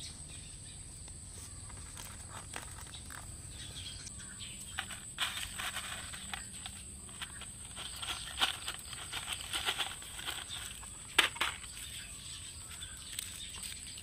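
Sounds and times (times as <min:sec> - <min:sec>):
plastic packaging crinkling: 0:04.8 - 0:11.9.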